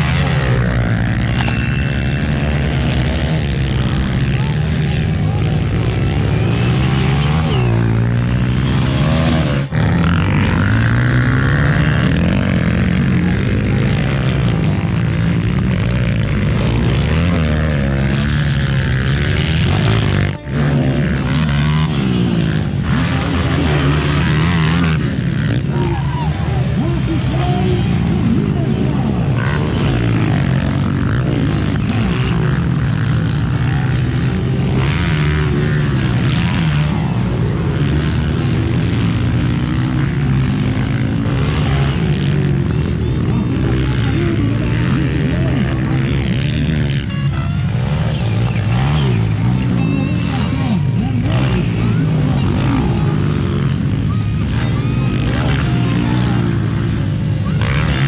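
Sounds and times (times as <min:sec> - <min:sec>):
dirt bike engines revving: 0:00.0 - 0:58.0.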